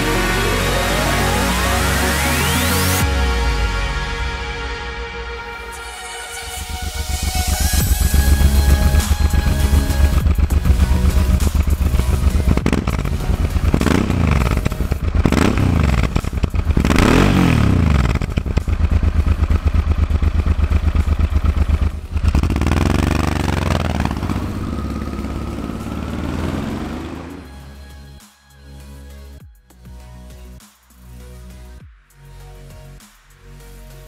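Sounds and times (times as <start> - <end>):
motorcycle engine revving: 6.5 - 27.8
motorcycle passing by: 6.7 - 27.7.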